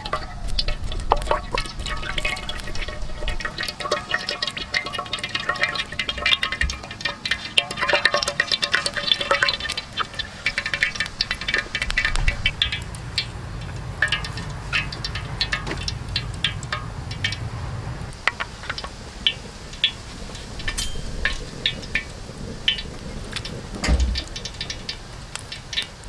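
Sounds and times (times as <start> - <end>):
wood fire crackling: 0.0 - 26.0
low steady rumble: 9.3 - 18.2, 19.0 - 25.4
metal spoon clinking against bowl: 20.7 - 21.3.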